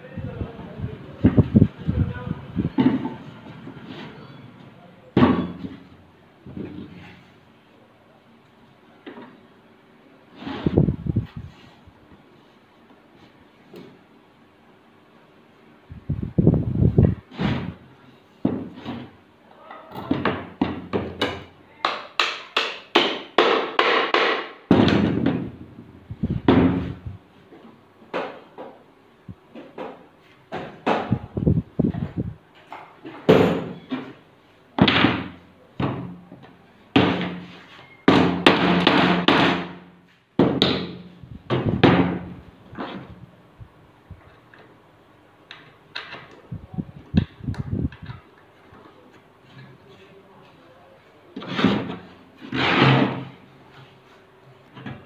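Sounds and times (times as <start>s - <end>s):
wooden knocks and thunks: 2.8s - 3.2s, 40.4s - 43.1s
wood scraping on wood: 51.4s - 54.2s.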